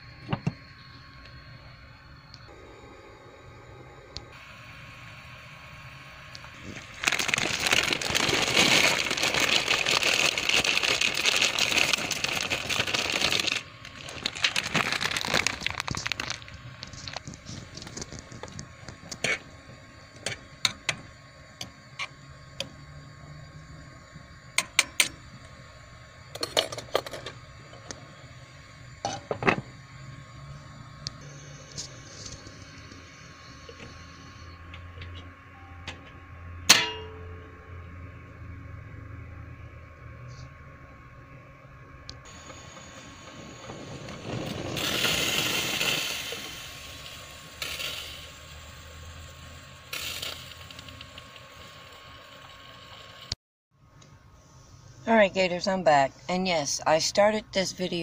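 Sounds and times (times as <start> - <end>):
dry noodles rustling: 6.6 - 17.2.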